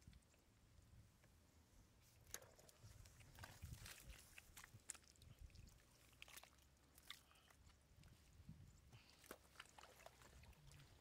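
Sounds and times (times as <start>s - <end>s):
hands squelching in mud: 2.4s - 8.0s, 8.8s - 11.0s.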